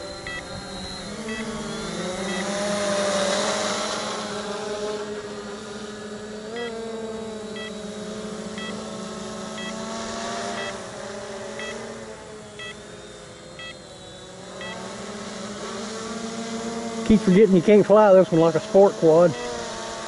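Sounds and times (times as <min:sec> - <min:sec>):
short electronic beep: 0:00.0 - 0:02.6, 0:08.6 - 0:08.8, 0:09.6 - 0:09.8, 0:10.6 - 0:10.8
drone propellers humming: 0:00.0 - 0:20.0.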